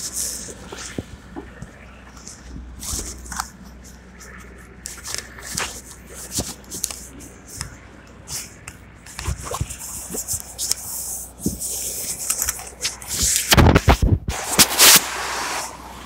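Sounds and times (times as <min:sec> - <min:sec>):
phone rubbing against clothing: 0:08.3 - 0:15.0.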